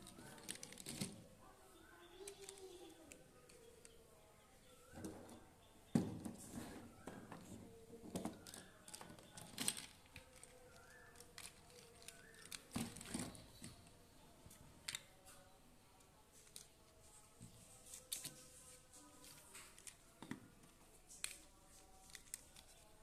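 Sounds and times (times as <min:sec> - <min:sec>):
plastic toys clattering: 0:00.0 - 0:01.3, 0:02.2 - 0:03.9, 0:06.0 - 0:13.9.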